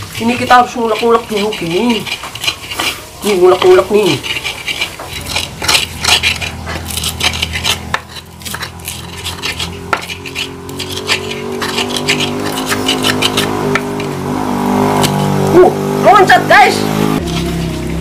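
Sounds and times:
pestle knocking and scraping mortar: 0.0s - 16.1s, 16.8s - 18.0s
engine hum: 4.3s - 18.0s.

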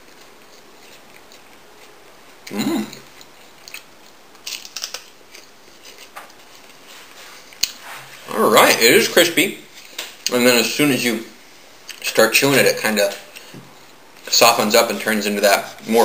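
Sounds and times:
chewing clicks: 0.0s - 5.4s
person humming: 2.5s - 3.0s
crunching crispy chip: 3.6s - 5.4s.

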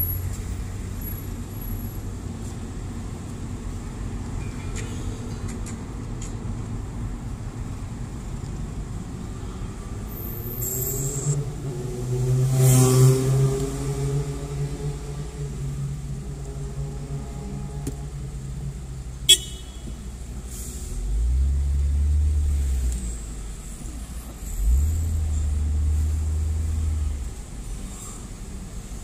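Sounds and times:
car engine hum: 5.2s - 29.0s
car rumbling moving off: 7.7s - 29.0s
short high car horn toot: 19.3s - 20.0s.

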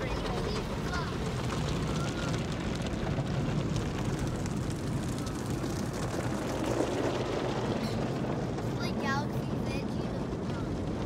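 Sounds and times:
water spray on car: 0.0s - 11.0s.

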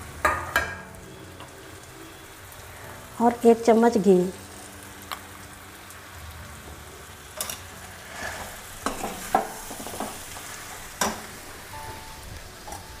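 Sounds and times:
sizzling in a metal pan: 0.0s - 13.0s
spoon knocking and scraping pan: 8.2s - 11.6s.

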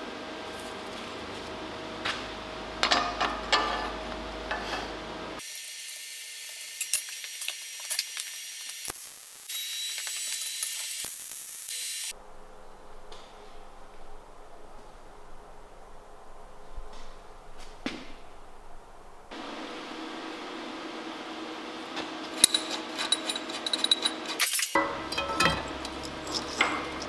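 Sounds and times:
hand tools clicking: 22.3s - 27.0s
metal clinks: 22.4s - 27.0s.

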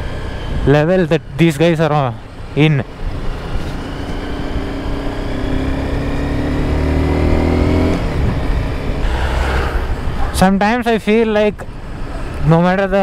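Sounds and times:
motorcycle engine accelerating: 2.2s - 10.4s.

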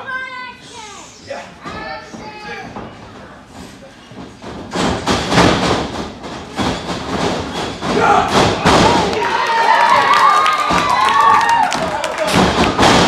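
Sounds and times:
bodies thudding in wrestling ring: 4.4s - 9.1s, 12.3s - 13.0s.

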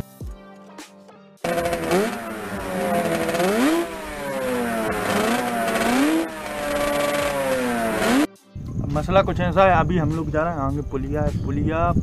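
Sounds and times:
motorcycle engine revving: 1.4s - 8.3s.

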